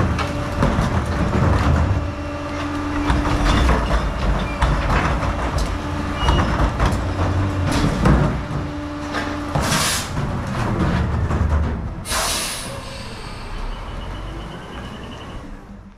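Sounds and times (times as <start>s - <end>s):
garbage truck engine rumbling: 0.0s - 15.9s
air brakes hissing: 9.6s - 10.2s, 12.0s - 14.3s.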